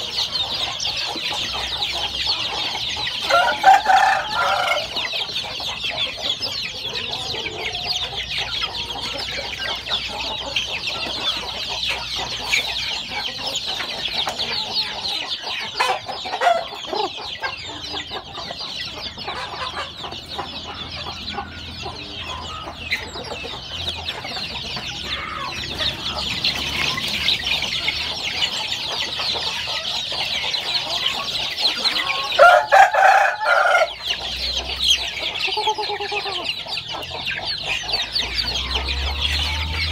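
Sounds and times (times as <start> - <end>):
chicks peeping: 0.0 - 39.9.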